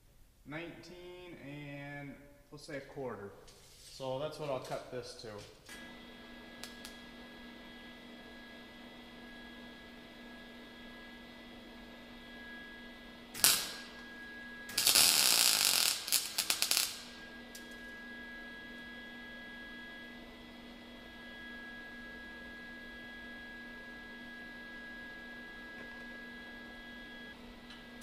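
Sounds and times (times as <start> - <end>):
welder humming: 4.5 - 28.0
welding arc bursts: 13.3 - 14.1, 14.7 - 17.9
arc sputters: 13.3 - 18.0.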